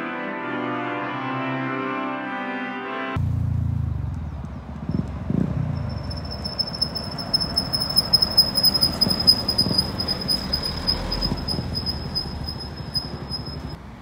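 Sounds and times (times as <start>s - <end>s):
traffic rumble: 3.2s - 14.0s
high-pitched whine: 5.7s - 13.8s.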